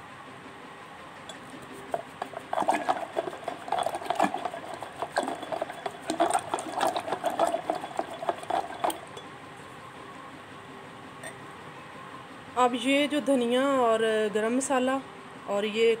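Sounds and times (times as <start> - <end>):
batter slapping and sloshing: 1.3 - 9.2
utensil clicking against pot: 1.3 - 9.3.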